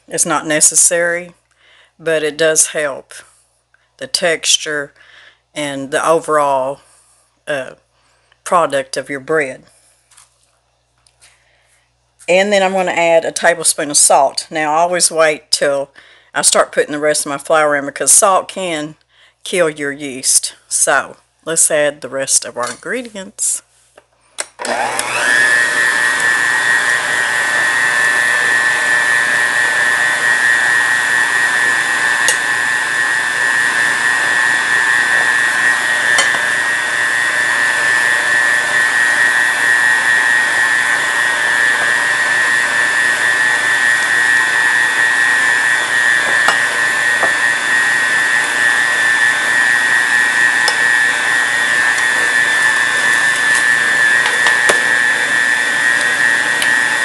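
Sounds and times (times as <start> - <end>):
stand mixer motor whining: 24.6 - 57.0.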